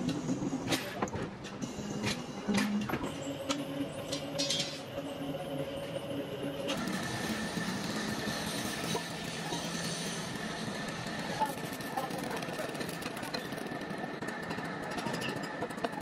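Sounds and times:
hissing machine noise: 0.0s - 15.9s
high steady machine whine: 0.0s - 16.0s
machinery hum: 0.0s - 16.0s.

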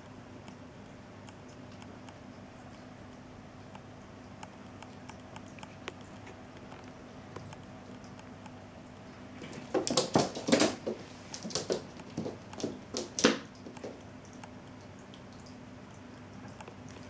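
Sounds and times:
cat paws skittering on wooden floor: 8.0s - 14.5s.

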